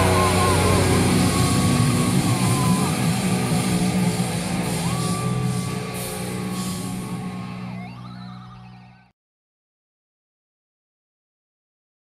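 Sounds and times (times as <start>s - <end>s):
heavy metal band playing live: 0.0s - 9.0s.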